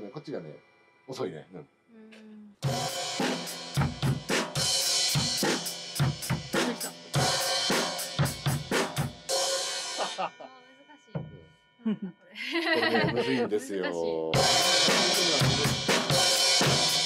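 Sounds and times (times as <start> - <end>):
drum kit steady beat: 2.6 - 11.4, 12.7 - 17.0.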